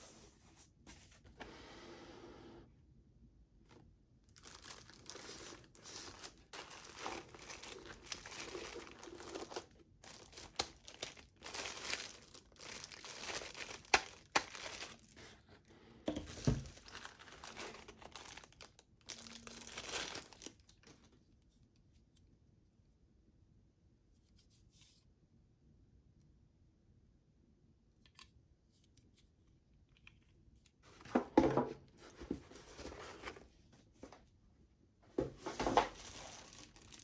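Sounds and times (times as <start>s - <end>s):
plastic wrapping crinkling: 3.7s - 15.5s, 16.1s - 21.2s, 35.4s - 37.0s.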